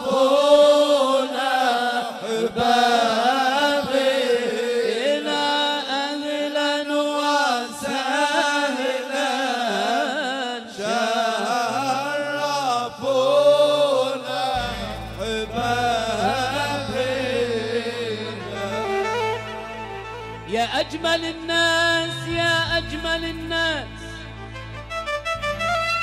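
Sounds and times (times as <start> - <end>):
live music: 14.6 - 26.0.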